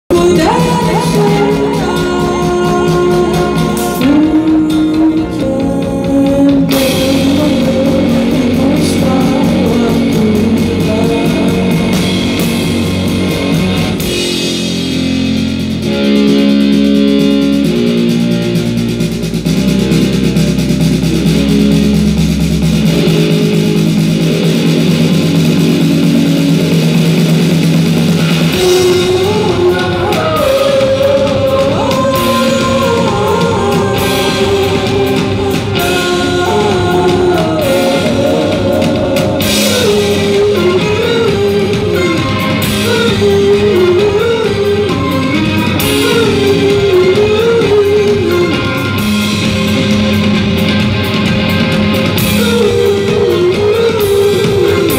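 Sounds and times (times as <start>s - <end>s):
woman singing: 0.0s - 12.5s, 28.5s - 49.2s, 52.3s - 54.9s
electric bass: 0.0s - 54.9s.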